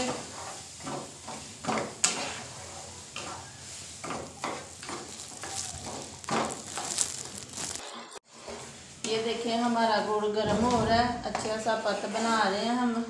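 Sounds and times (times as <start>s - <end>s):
liquid sizzling: 0.0s - 8.2s
spatula scraping a pan: 0.0s - 9.0s.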